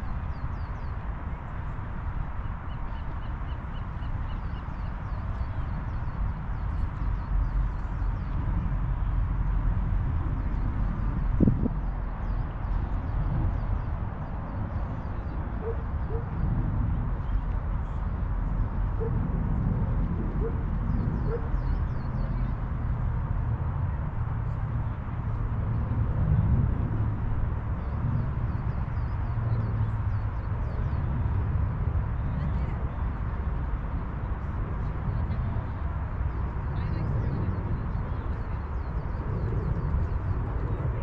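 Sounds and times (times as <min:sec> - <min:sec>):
wind buffeting microphone: 0:00.0 - 0:41.0.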